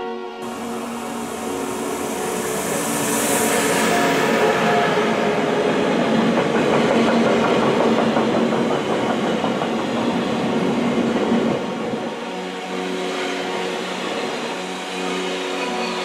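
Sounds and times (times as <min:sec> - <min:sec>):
freight train rolling past: 0:00.0 - 0:16.0.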